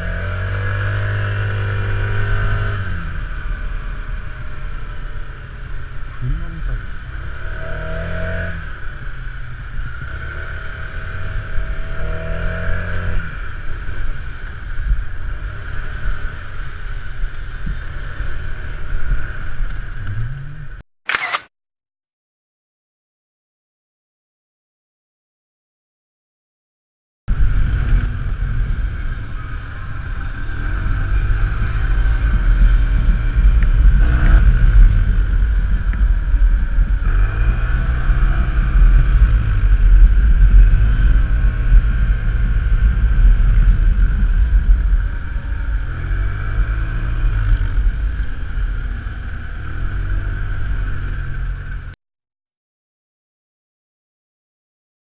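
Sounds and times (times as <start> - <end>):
wind rumble on microphone: 27.3 - 52.0.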